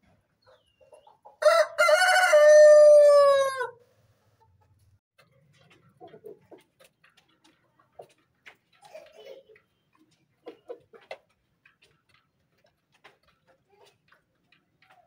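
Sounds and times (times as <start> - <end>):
rooster crowing: 1.4 - 3.8.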